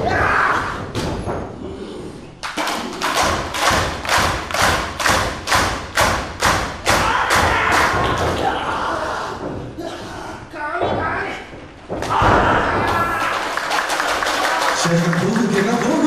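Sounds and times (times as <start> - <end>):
thuds of wrestlers grappling: 0.0 - 1.7, 5.2 - 13.4
sharp claps echoing in a hall: 2.4 - 8.7, 11.9 - 16.0.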